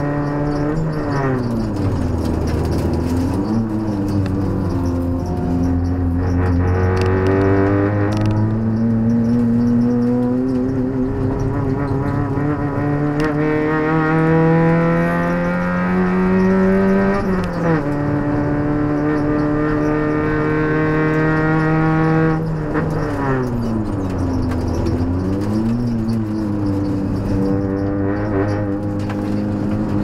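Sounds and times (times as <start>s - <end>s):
race car engine accelerating: 0.0s - 30.0s.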